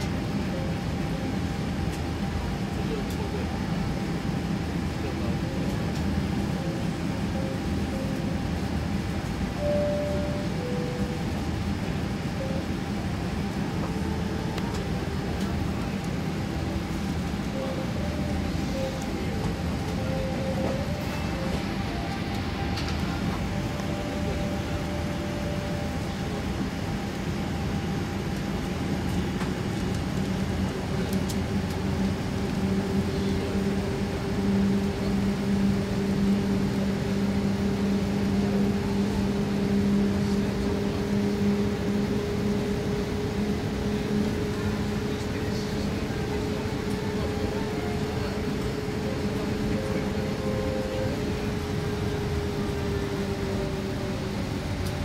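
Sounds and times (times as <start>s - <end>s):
jet engine low hum: 0.0s - 55.0s
jet engine whine rising: 0.0s - 55.0s.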